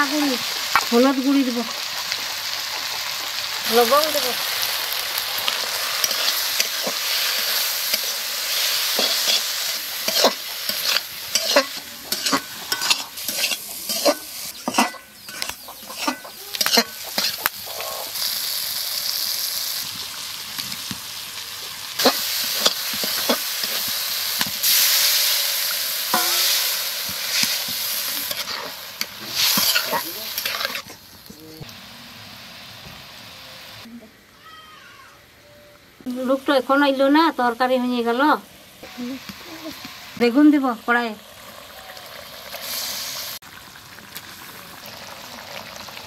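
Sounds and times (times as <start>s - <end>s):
food sizzling in hot oil: 0.0s - 35.0s, 36.0s - 46.0s
metal spatula scraping pan: 8.9s - 18.0s, 26.1s - 26.7s, 27.3s - 31.0s.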